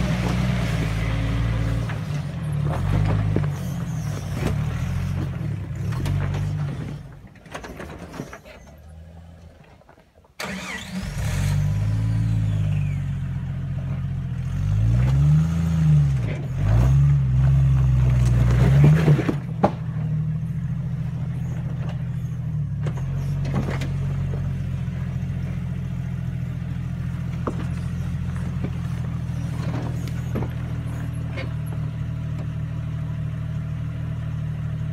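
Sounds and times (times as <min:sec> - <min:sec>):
engine revving under load: 0:00.0 - 0:07.1, 0:10.4 - 0:34.9.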